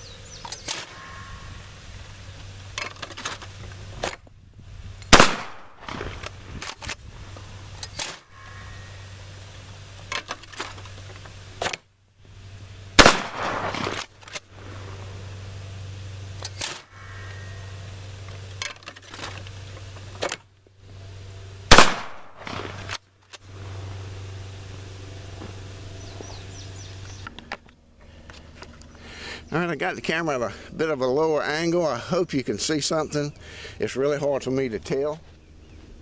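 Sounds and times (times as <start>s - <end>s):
motor humming: 0.0s - 36.0s
shotgun blasts: 5.1s - 6.2s, 13.0s - 14.1s, 21.7s - 23.0s.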